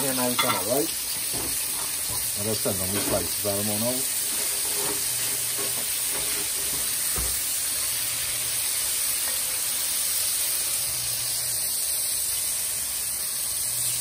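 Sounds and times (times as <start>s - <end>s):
fish sizzling in hot oil: 0.0s - 14.0s
knock: 7.2s - 7.4s.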